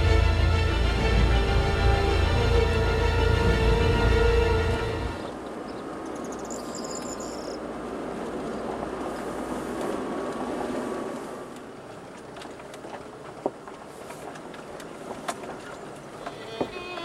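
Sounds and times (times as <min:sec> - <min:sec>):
car engine rumbling: 0:00.0 - 0:17.0
high chirping: 0:05.2 - 0:07.6
tyres rumbling on stones: 0:07.9 - 0:17.0.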